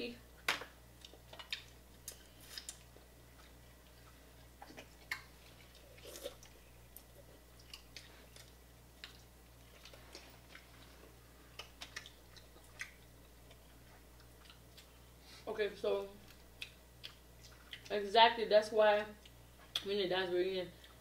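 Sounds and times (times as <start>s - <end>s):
close chewing: 1.0s - 15.0s, 16.2s - 18.0s.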